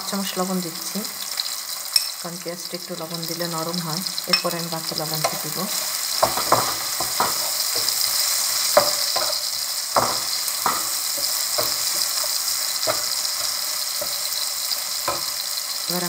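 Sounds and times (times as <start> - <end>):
vegetables sizzling in hot oil: 0.0 - 16.0
wooden spatula scraping a pan: 5.2 - 15.4.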